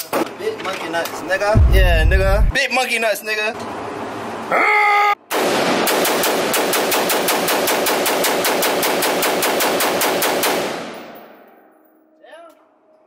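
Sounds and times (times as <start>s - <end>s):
rapid gunfire echoing indoors: 5.3s - 11.2s.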